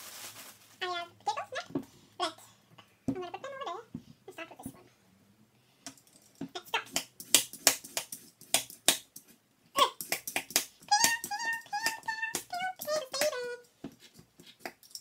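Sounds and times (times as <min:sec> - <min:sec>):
person humming a tune: 0:10.9 - 0:13.7.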